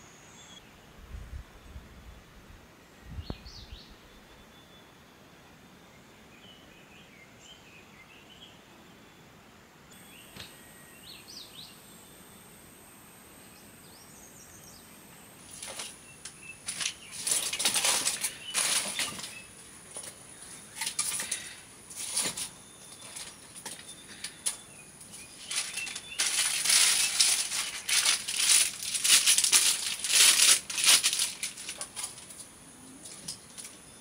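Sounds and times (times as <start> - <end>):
faint high-pitched buzz: 0.0 - 34.0
rustling: 15.3 - 33.8.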